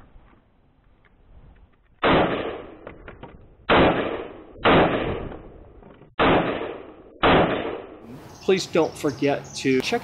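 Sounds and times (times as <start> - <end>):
rifle shots: 2.0 - 2.9, 3.6 - 5.5, 6.2 - 8.0.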